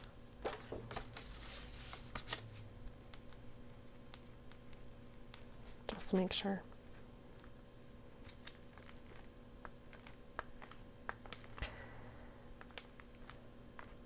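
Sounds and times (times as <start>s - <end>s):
paper rustling: 0.4s - 3.3s, 8.2s - 11.6s.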